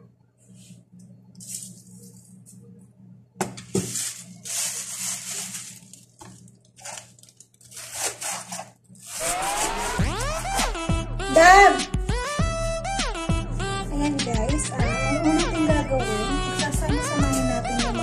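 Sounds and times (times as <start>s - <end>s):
plastic bag rustling and crinkling: 3.5s - 9.7s
electronic music: 9.2s - 18.0s.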